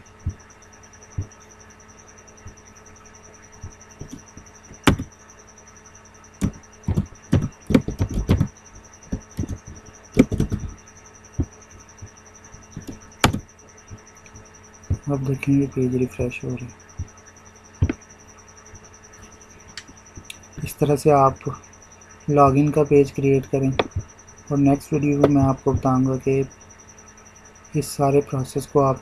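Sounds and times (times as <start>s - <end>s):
faint high-pitched whine: 0.0s - 29.0s
keyboard keystrokes: 6.4s - 8.5s, 9.1s - 10.8s.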